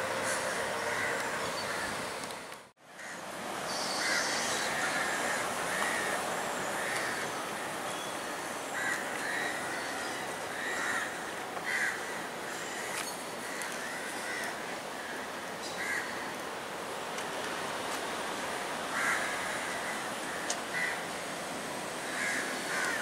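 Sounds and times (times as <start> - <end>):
crows cawing: 0.3 - 1.9, 3.0 - 3.2, 4.0 - 16.3, 18.9 - 21.1, 22.0 - 23.0.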